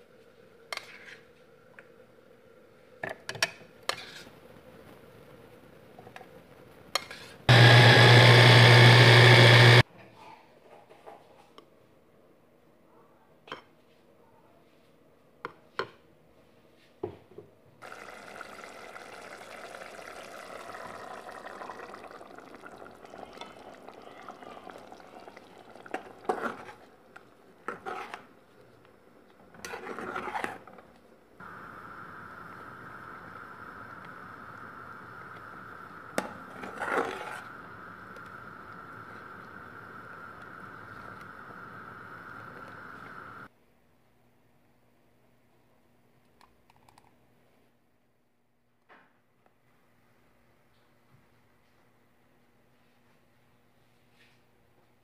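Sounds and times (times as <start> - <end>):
ladle scraping in pot: 3.9 - 4.3, 25.9 - 26.9, 27.6 - 28.3, 29.5 - 30.8, 36.2 - 37.5
broth bubbling in a pot: 17.8 - 30.7, 31.4 - 43.5.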